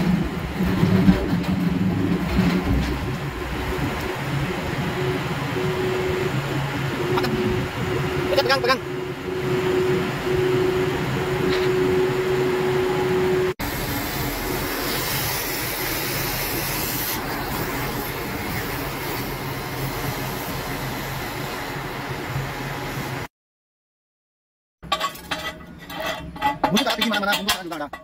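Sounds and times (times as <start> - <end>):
heavy machinery humming: 0.0 - 16.6.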